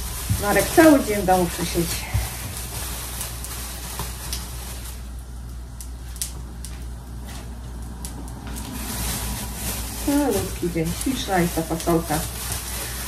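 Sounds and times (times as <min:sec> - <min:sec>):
utensils clicking and tapping: 0:10.0 - 0:13.0.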